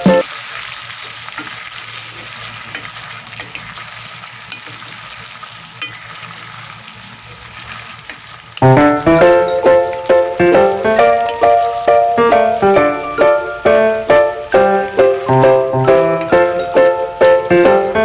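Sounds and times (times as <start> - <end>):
background music: 0.0 - 0.2, 8.6 - 18.0
shrimp sizzling in a pot: 0.0 - 13.6.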